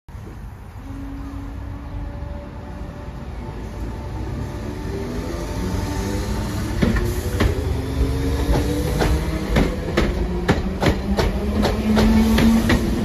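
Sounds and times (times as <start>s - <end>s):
low train rumble: 0.1s - 13.0s
train wheels clicking over rail joints: 8.4s - 13.0s.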